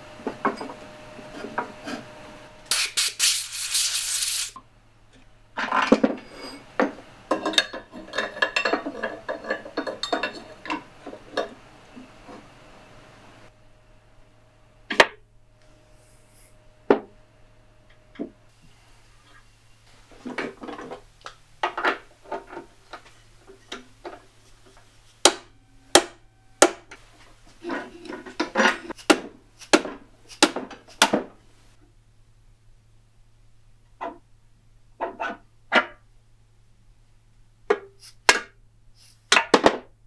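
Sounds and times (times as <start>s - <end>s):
metal clanks clicks and taps: 6.8s - 11.6s.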